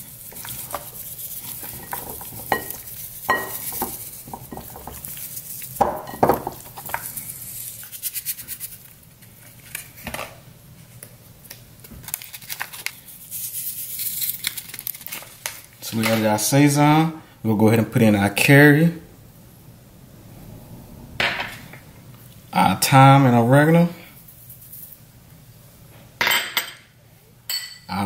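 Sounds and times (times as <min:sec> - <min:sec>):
seasoning packet shaken: 0:00.0 - 0:05.8, 0:06.6 - 0:08.9, 0:12.2 - 0:15.4.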